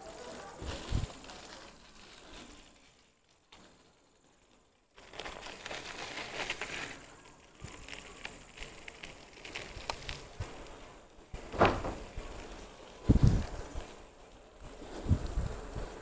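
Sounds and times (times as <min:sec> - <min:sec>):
bicycle riding noise: 0:00.0 - 0:16.0
clicks and rattles: 0:11.4 - 0:12.2.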